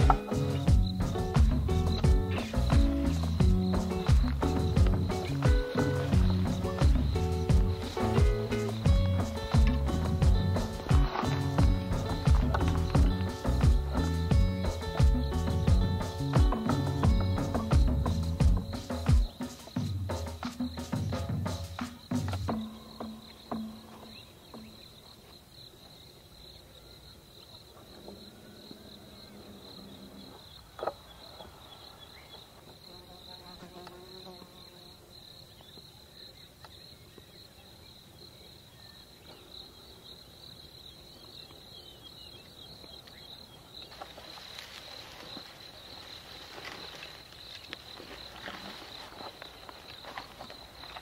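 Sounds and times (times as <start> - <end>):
rustling of grass and brush: 0.0 - 22.6, 43.0 - 51.0
insects trilling: 0.0 - 51.0.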